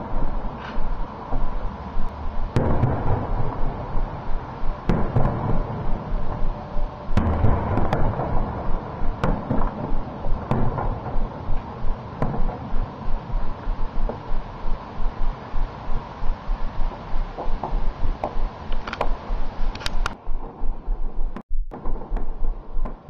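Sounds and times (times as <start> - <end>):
deep firework booms: 0.0 - 18.7, 20.3 - 23.0
fireworks exploding with sharp bangs: 2.4 - 16.1.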